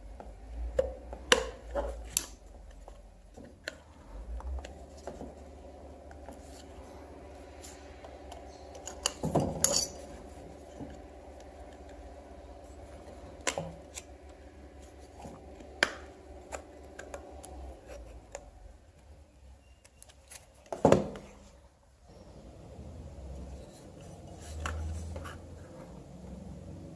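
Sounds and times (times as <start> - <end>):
steady low hum: 0.0 - 19.5.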